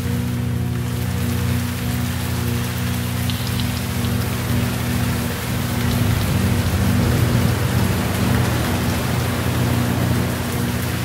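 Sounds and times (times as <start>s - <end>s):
low steady hum: 0.0s - 11.0s
steady rainfall: 0.0s - 11.0s
thunder rumble: 3.2s - 11.0s.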